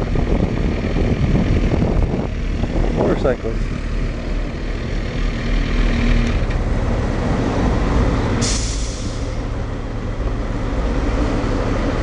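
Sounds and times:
motorcycle engine rumble: 0.0s - 8.4s
short hiss burst: 8.4s - 9.4s.

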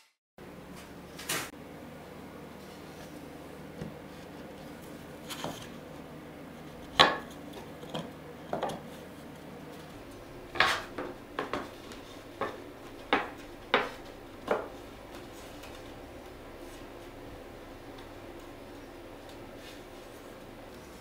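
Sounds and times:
plywood panels knocking: 10.5s - 14.8s.

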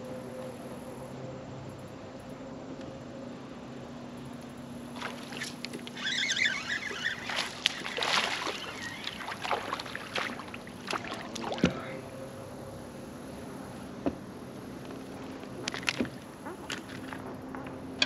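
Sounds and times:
fish splashing in water: 4.9s - 11.8s, 15.6s - 17.3s.

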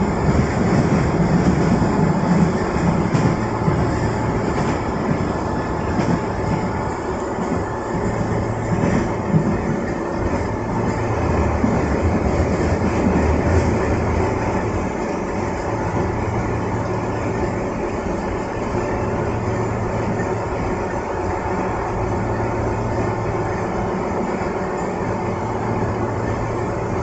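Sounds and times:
train rumbling on rails: 0.0s - 27.0s.

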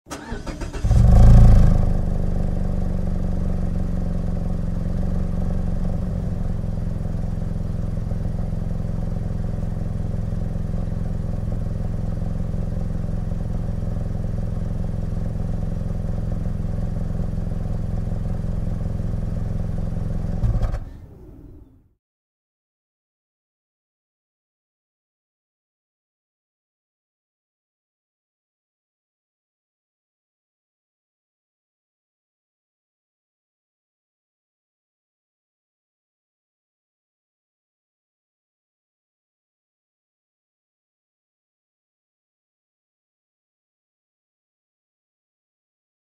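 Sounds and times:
car starter cranking: 0.1s - 1.9s
car engine revving and idling: 0.1s - 21.9s.

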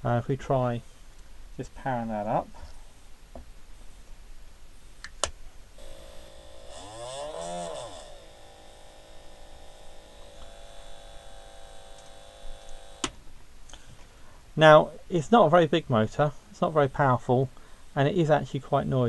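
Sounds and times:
electric motor whine: 5.8s - 13.2s
leads clicking: 10.2s - 13.2s.

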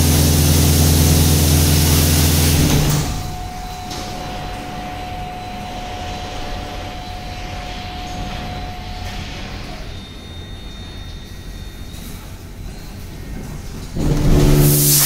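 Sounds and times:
high-pressure water jets spraying: 0.0s - 3.2s, 14.0s - 15.0s
steady machine whine: 0.0s - 15.0s
faint higher whine: 0.7s - 15.0s.

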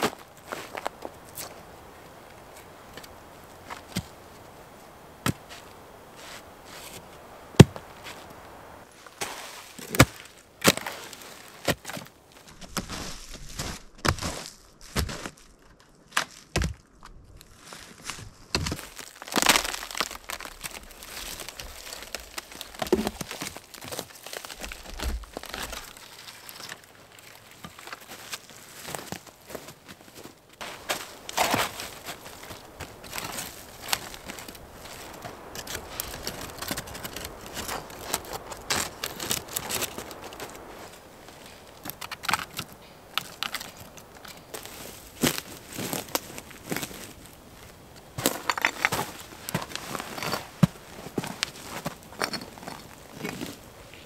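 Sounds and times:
twigs rustling: 0.0s - 54.0s
dry branches snapping: 9.1s - 51.9s.

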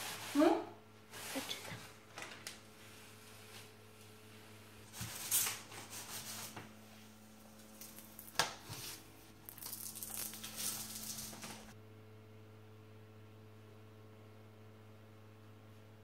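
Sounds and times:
plastic film crinkling: 7.4s - 11.8s.

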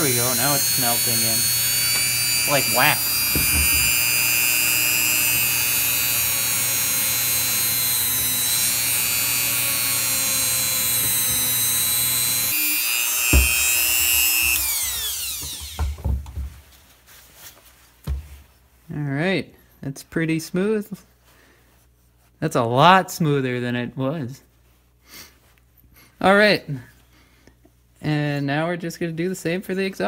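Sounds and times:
rotary tool high whine: 0.0s - 16.2s.

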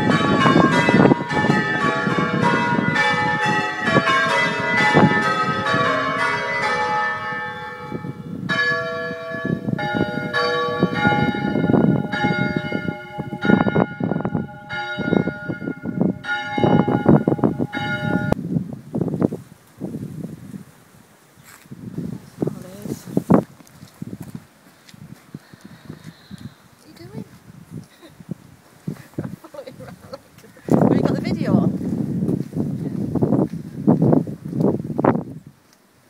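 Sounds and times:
church bells ringing: 0.0s - 18.4s.

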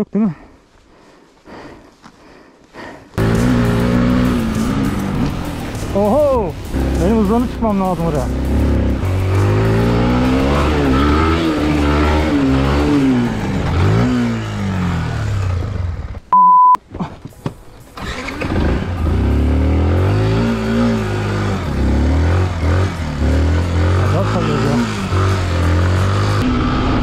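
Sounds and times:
motorcycle engine revving: 3.2s - 16.3s, 18.0s - 27.0s
loud steady beep: 16.3s - 16.8s.

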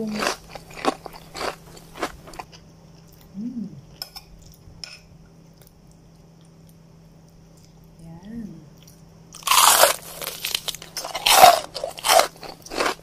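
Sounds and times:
person humming mm: 3.3s - 3.9s.

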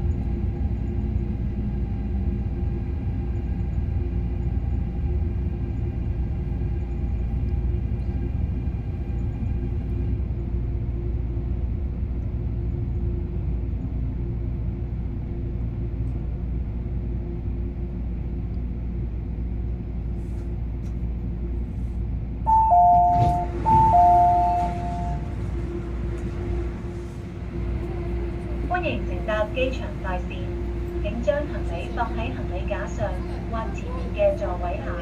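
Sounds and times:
train rumbling: 0.0s - 35.0s
two-note door chime: 22.5s - 25.3s.

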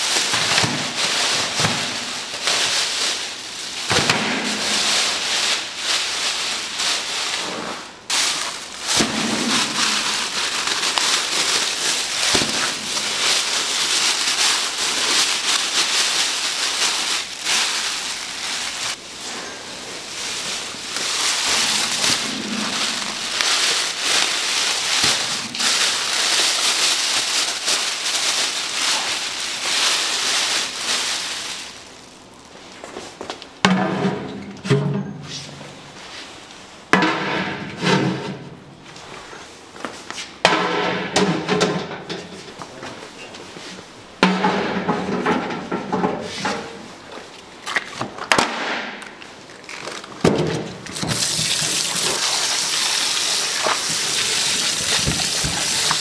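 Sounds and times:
food sizzling in a hot pan: 51.2s - 56.0s.

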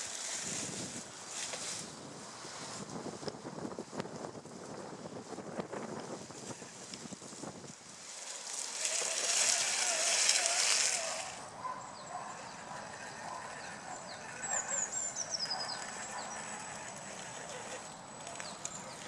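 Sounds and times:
birds calling: 8.3s - 19.0s.

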